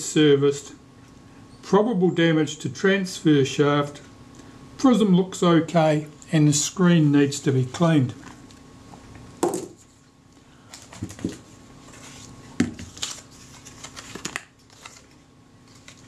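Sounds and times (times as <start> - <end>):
paper tag rustling: 10.8 - 16.0.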